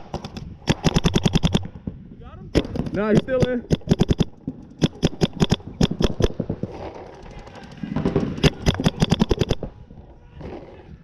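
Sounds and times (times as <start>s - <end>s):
paintball markers firing bursts: 0.0s - 1.8s, 2.6s - 7.4s, 8.1s - 9.7s
faint distant paintball shots: 0.0s - 2.0s, 2.6s - 9.8s.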